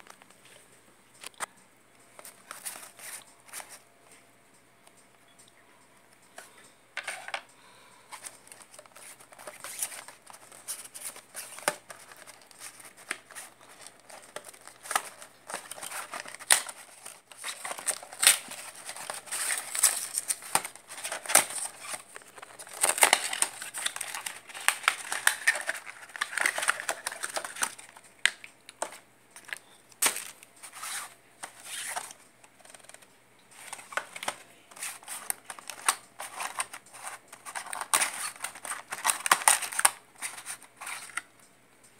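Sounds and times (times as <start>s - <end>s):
plastic packaging crinkling: 8.1s - 41.3s.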